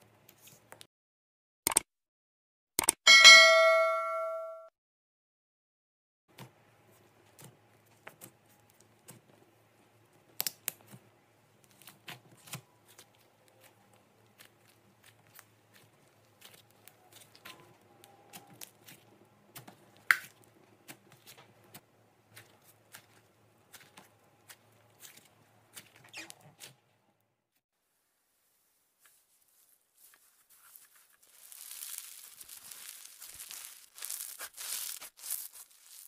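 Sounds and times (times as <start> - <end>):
slime squeezed by hand: 30.0 - 36.0.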